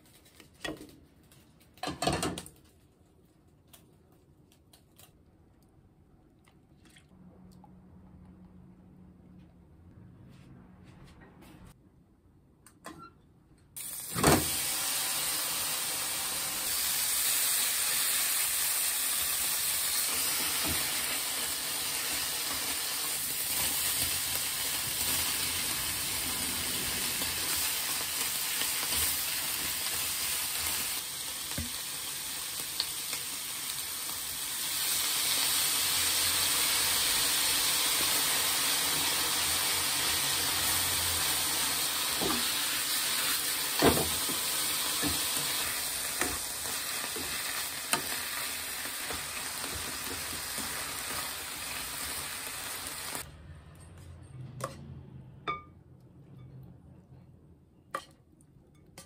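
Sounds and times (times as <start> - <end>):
food sizzling in a frying pan: 13.8 - 53.2.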